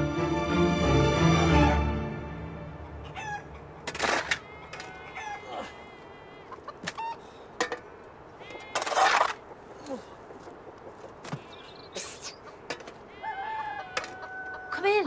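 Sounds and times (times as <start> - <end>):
chickens clucking: 2.7 - 7.3, 10.2 - 15.0.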